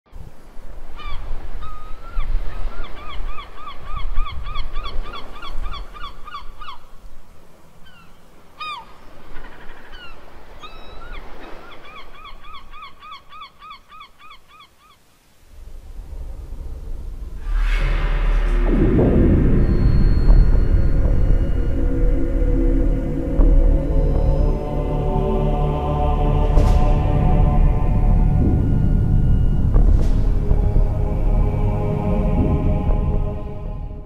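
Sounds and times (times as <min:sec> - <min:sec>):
low rumble: 0:15.5 - 0:34.0.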